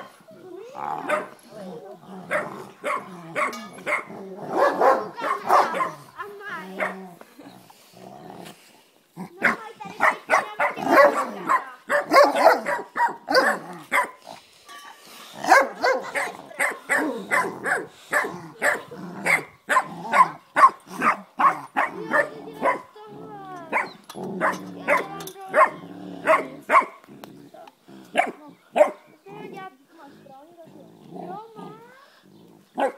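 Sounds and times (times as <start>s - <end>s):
dogs growling: 0.0s - 14.5s, 15.2s - 32.9s
dogs barking: 1.0s - 1.4s, 2.2s - 6.0s, 9.4s - 14.2s, 15.4s - 23.0s, 23.7s - 27.1s, 28.1s - 29.0s.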